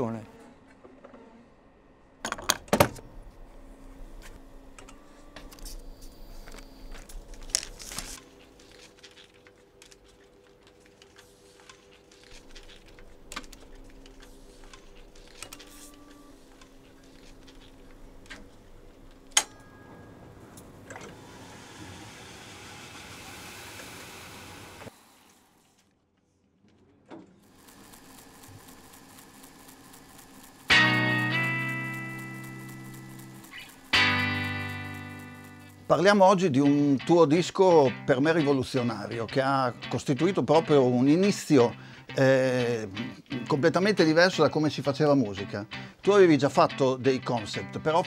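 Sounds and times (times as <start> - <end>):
tape winding with whirring hiss: 4.3 - 19.4, 27.4 - 36.4.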